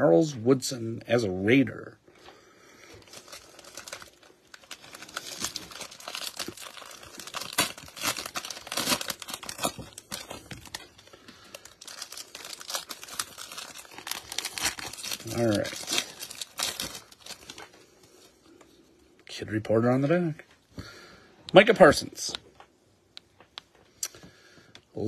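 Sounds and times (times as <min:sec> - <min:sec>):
plastic wrappers tearing and crinkling: 0:02.9 - 0:18.4.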